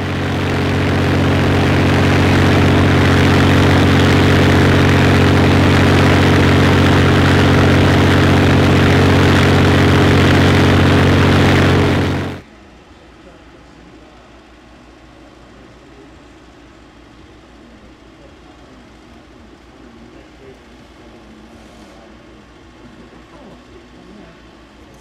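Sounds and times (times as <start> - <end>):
propeller aircraft engine running: 0.0 - 12.4.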